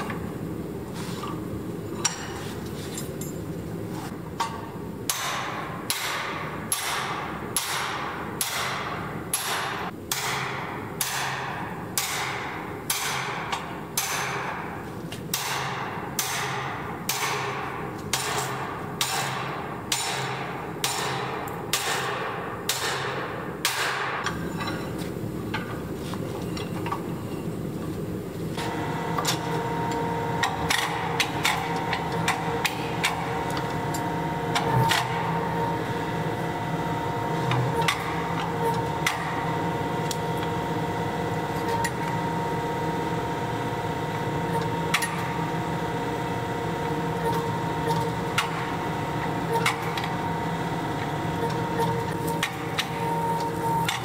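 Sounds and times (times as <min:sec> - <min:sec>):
constant background hum: 0:00.0 - 0:54.0
hammer striking hot steel: 0:05.1 - 0:14.7, 0:15.3 - 0:24.8
power press machine hum: 0:28.5 - 0:54.0.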